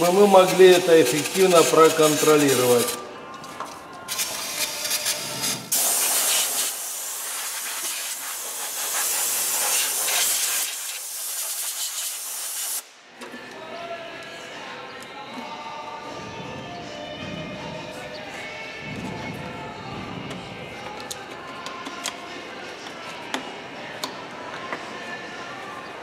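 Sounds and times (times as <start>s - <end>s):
aerosol spray hissing: 0.0s - 2.9s, 4.1s - 12.8s
compressed air blow gun hiss: 4.1s - 12.8s.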